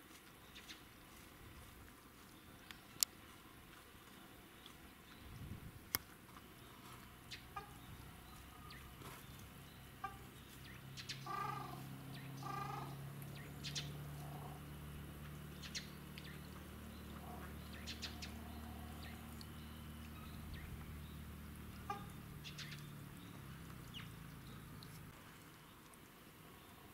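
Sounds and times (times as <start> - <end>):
low steady hum: 0.0 - 26.9
small birds chirping: 0.3 - 26.9
waterfowl calls: 7.3 - 8.8, 9.9 - 14.8, 15.5 - 22.8.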